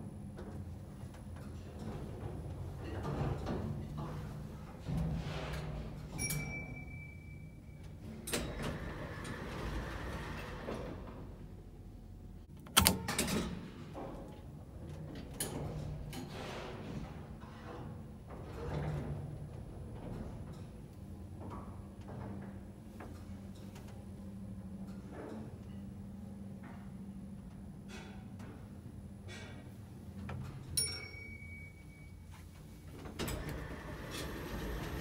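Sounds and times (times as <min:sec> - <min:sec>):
lift doors sliding: 0:08.2 - 0:11.4, 0:33.0 - 0:35.0.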